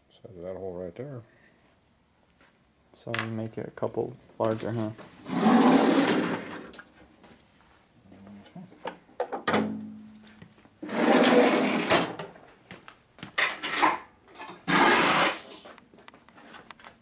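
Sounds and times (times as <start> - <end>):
metal tools clinking and scraping: 13.4 - 15.6.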